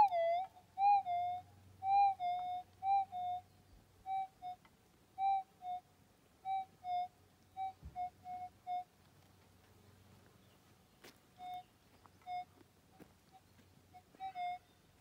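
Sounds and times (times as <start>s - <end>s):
metal detector beeps: 14.0s - 14.7s.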